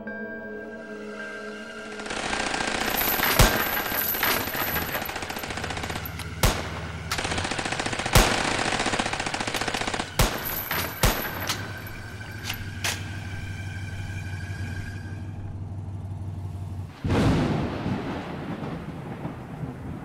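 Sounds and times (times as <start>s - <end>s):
automatic gunfire rattle: 2.1s - 13.0s
single gunshots: 6.2s - 8.6s, 9.7s - 11.8s.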